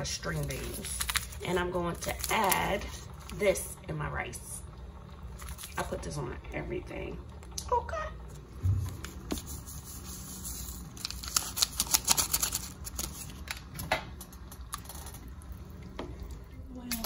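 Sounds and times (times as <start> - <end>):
foil packet crinkling: 0.2 - 3.4, 9.0 - 15.5.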